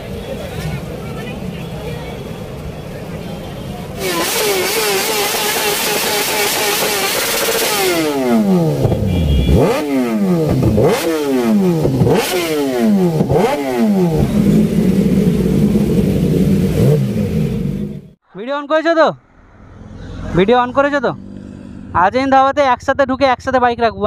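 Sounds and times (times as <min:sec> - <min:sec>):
motorcycle engine revving: 0:03.9 - 0:18.2, 0:19.2 - 0:22.3.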